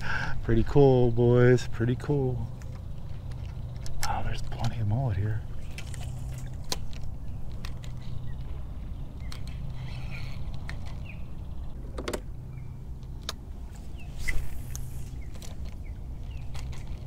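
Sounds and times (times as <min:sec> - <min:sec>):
sharp clicks: 0:13.0 - 0:13.4.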